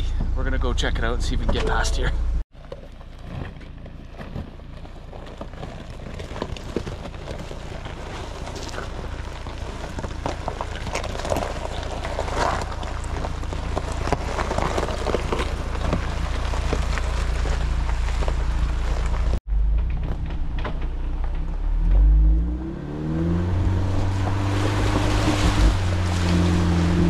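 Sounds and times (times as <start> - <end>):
low engine rumble: 0.0 - 27.0
tyres crunching over gravel: 0.4 - 22.0, 23.0 - 27.0.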